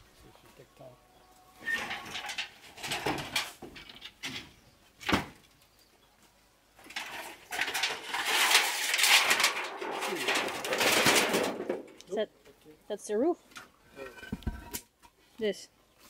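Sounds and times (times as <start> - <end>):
debris scraping and rustling: 1.6 - 4.6, 6.8 - 12.2, 13.9 - 14.9
metal roof sheet rattling: 1.6 - 5.4, 6.8 - 12.0.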